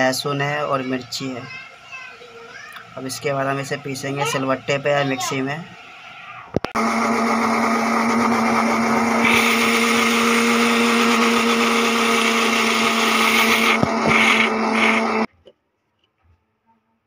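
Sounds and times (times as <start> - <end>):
mixer grinder running: 0.0 - 15.3
clicks: 13.6 - 16.1.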